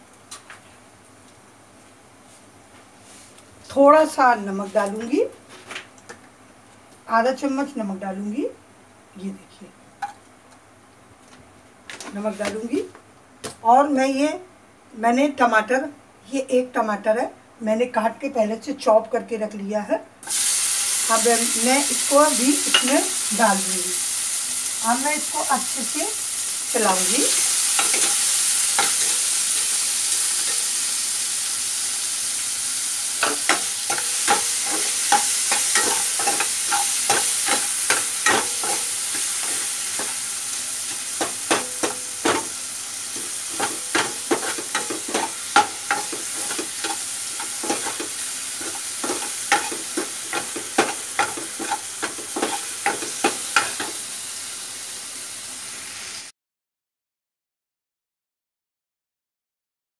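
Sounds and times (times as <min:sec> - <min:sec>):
tomatoes sizzling in oil: 0:20.2 - 0:56.3.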